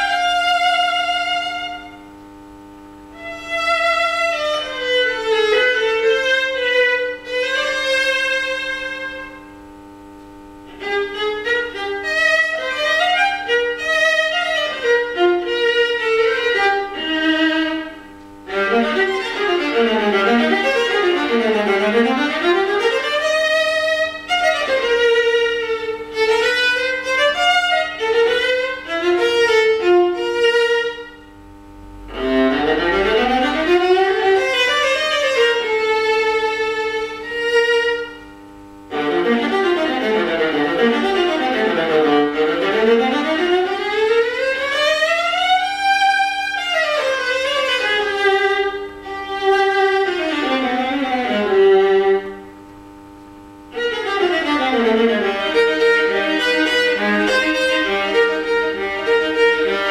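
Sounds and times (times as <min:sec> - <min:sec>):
bowed viola arpeggios: 0:00.0 - 0:02.0, 0:03.2 - 0:09.4, 0:10.7 - 0:31.2, 0:32.0 - 0:38.2, 0:38.9 - 0:52.5, 0:53.7 - 0:59.9.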